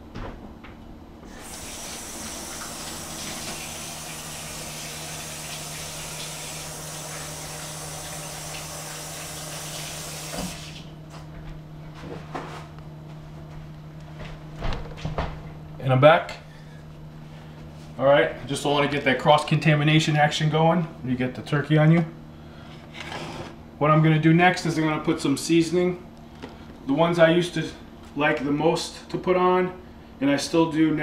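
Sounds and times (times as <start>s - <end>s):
faucet running: 1.3s - 10.9s.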